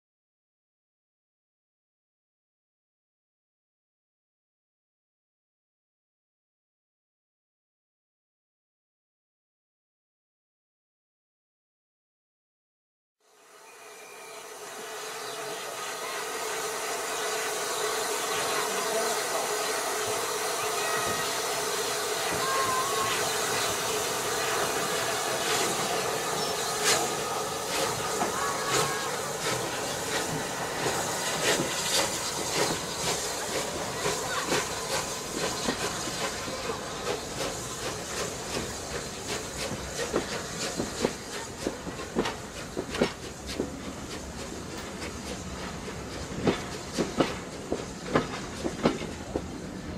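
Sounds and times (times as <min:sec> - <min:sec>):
steam locomotive hissing: 0:13.3 - 0:49.9
train wheels clicking over rail joints: 0:20.0 - 0:49.9.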